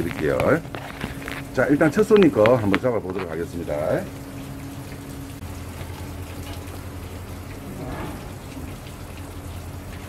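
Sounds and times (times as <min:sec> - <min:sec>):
constant hiss: 0:00.0 - 0:10.0
low machinery drone: 0:00.0 - 0:10.0.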